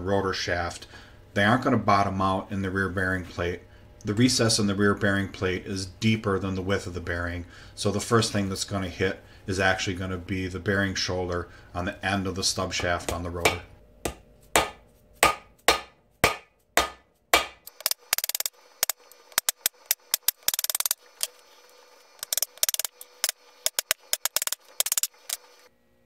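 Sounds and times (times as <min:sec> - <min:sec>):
hammer striking metal driver: 0:13.4 - 0:21.0, 0:22.2 - 0:25.4.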